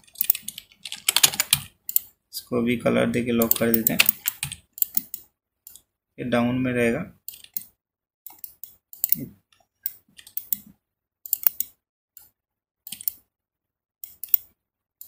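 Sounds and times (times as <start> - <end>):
computer mouse clicks: 0.1 - 2.1, 3.4 - 5.9, 7.3 - 13.2, 14.0 - 14.5.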